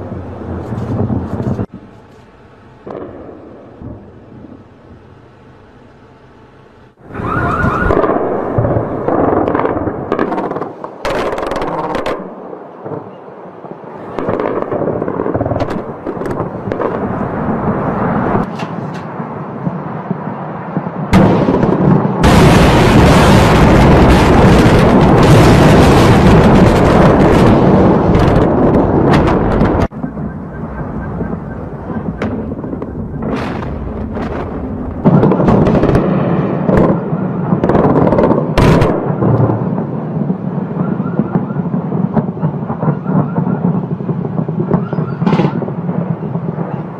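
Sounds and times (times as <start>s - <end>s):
bombs exploding: 7.8s - 18.5s, 19.1s - 46.9s
guns firing: 31.1s - 39.5s, 44.7s - 45.9s.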